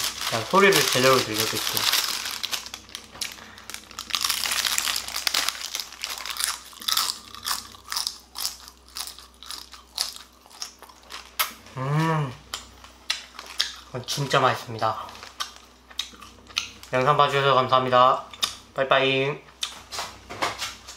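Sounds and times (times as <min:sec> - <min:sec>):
crunchy food being chewed: 0:00.0 - 0:11.6, 0:12.5 - 0:14.3, 0:15.0 - 0:17.0.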